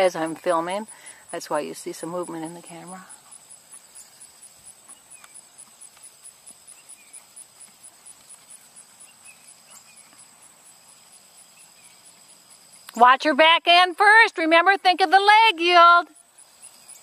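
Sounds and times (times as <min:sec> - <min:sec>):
insects chirping: 0:00.0 - 0:17.0
horse hoofbeats on sand: 0:03.0 - 0:12.3.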